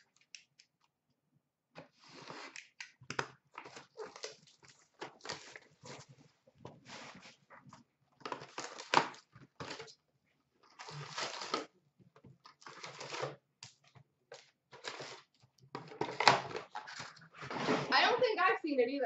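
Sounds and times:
cardboard scraping and rustling: 0:03.6 - 0:07.5, 0:12.6 - 0:13.4, 0:14.8 - 0:18.2.

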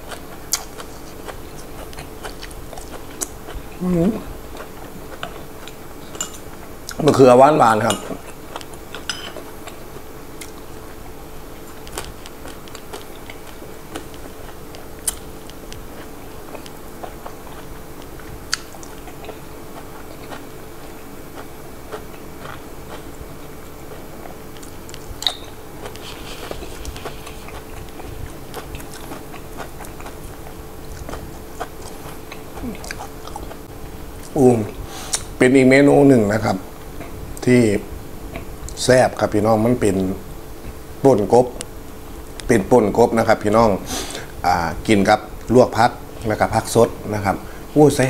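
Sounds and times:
person chewing raw vegetables: 0:00.0 - 0:07.1, 0:08.1 - 0:35.4
faint hum: 0:00.0 - 0:48.0.

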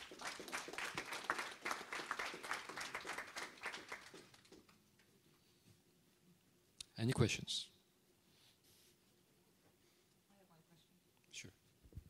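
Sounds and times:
small audience applauding: 0:00.0 - 0:04.9.

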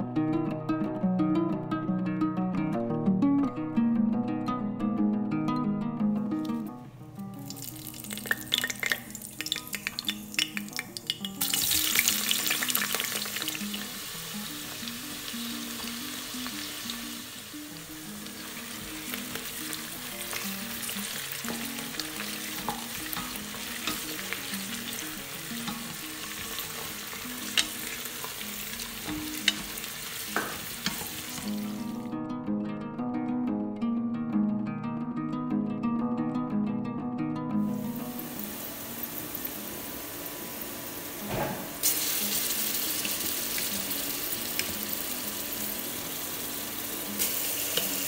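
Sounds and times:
onions sizzling in hot oil: 0:07.4 - 0:32.0, 0:38.0 - 0:41.2, 0:41.8 - 0:48.0
spatula taps: 0:08.3 - 0:11.9, 0:20.3 - 0:31.7.

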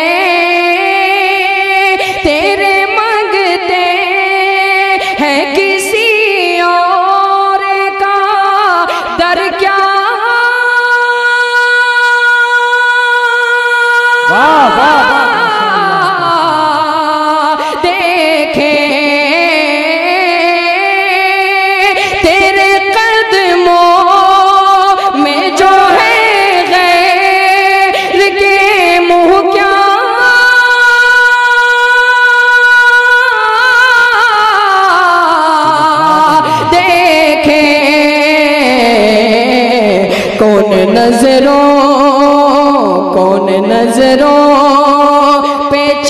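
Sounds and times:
man singing into a microphone: 0:14.2 - 0:17.2, 0:35.1 - 0:44.7.

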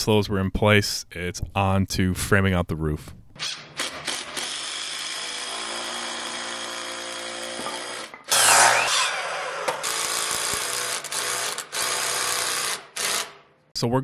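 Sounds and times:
miter saw cutting wood: 0:03.4 - 0:13.4
drill driving screws: 0:03.4 - 0:13.5.

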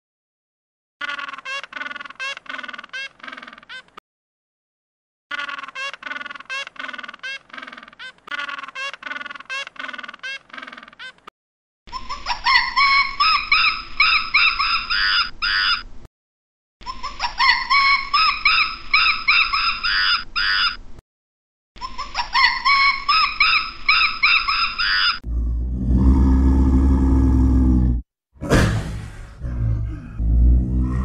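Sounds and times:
macaque squeals and chatter: 0:01.0 - 0:04.0, 0:05.3 - 0:11.3
leopard growl: 0:25.2 - 0:28.0, 0:29.2 - 0:31.0.

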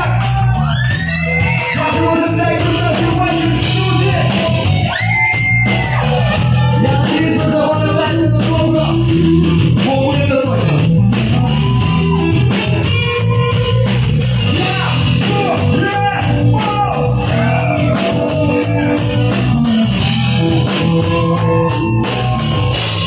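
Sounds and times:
live rock band playing: 0:00.0 - 0:23.0
man singing: 0:01.2 - 0:04.9, 0:06.4 - 0:11.3, 0:14.4 - 0:19.7.

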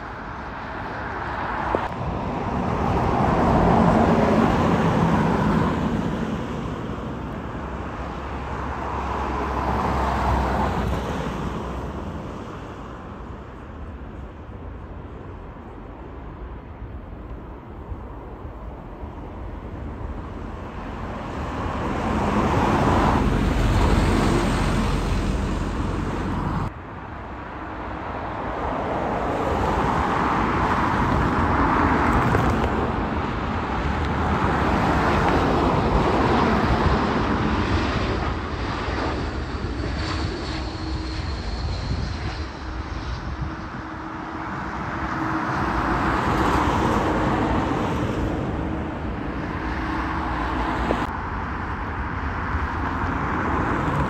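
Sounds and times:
airliner approaching to land: 0:00.0 - 0:54.0
jet engines roaring: 0:00.0 - 0:54.0.

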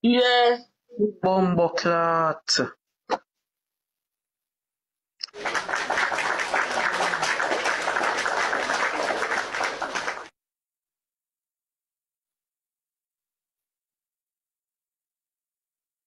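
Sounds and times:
crowd applause: 0:05.2 - 0:10.3.

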